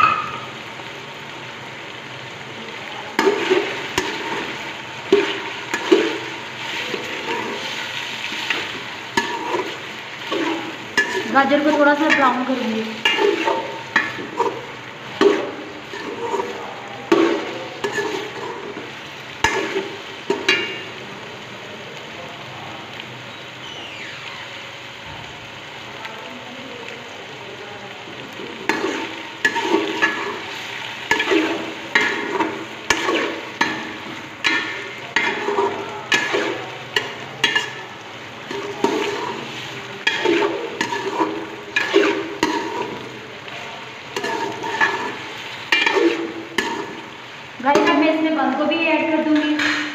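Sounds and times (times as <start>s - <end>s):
food sizzling in oil: 0.0s - 49.9s
spoon stirring and scraping: 3.2s - 20.9s, 28.7s - 43.1s, 44.2s - 47.1s.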